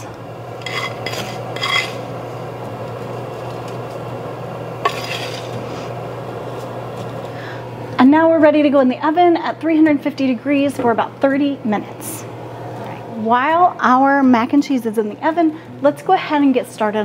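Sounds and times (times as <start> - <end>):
utensil scraping and clinking on pan: 0.6 - 2.0, 4.8 - 5.6.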